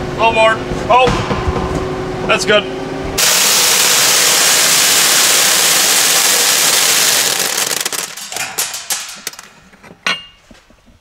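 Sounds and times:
corn kernels pouring down metal chute: 3.2 - 9.4.

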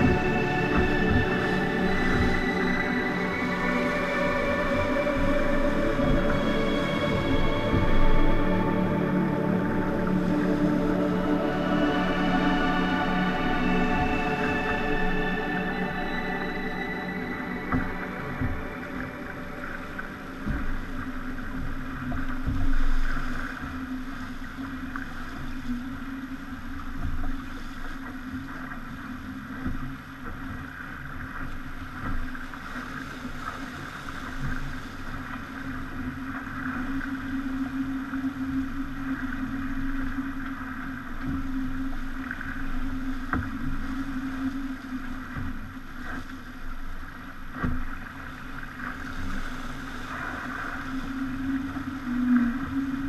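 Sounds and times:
steady drone: 0.0 - 26.3
water rushing: 0.0 - 53.0.

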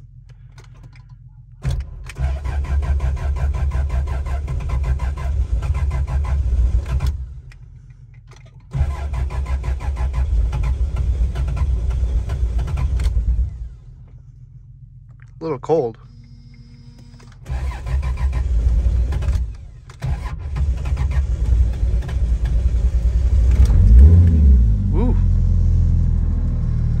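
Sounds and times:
starter cranking engine: 0.2 - 13.8, 16.8 - 24.4.

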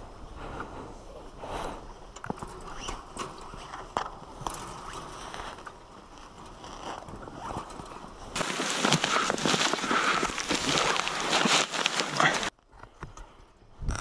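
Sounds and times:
small crunches and clicks: 2.2 - 13.3
clothing scraping rough ground: 2.6 - 12.6.

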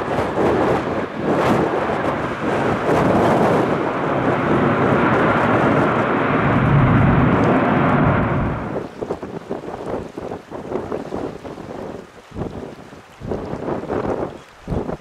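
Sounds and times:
jet engine roar: 0.0 - 10.2
wind buffeting microphone: 0.0 - 15.0.

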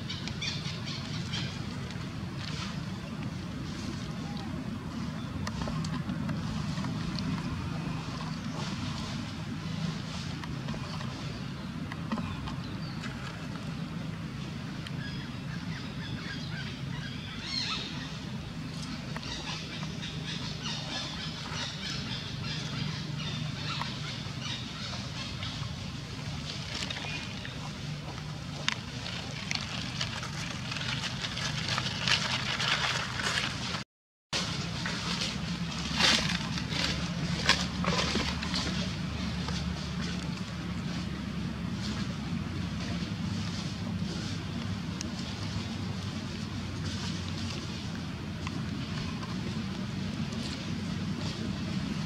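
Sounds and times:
small clicks and rustles: 26.5 - 33.8
dry leaves crackling and rustling: 28.6 - 33.8, 34.4 - 39.8.

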